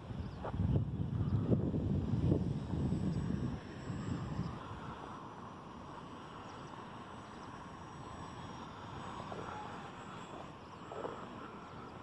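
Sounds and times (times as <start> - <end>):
wind noise: 0.0 - 5.0
distant model plane motor buzzing: 0.0 - 12.0.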